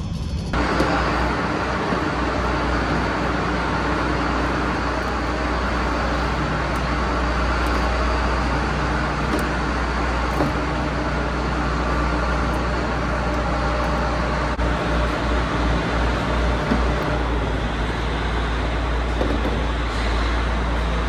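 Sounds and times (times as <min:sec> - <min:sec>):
mechanical drone with low hum: 0:00.0 - 0:21.0.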